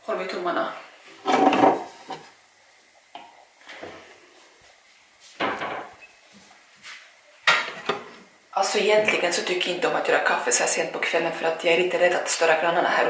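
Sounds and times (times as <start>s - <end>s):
kitchen items knocking and clattering: 1.2s - 2.2s.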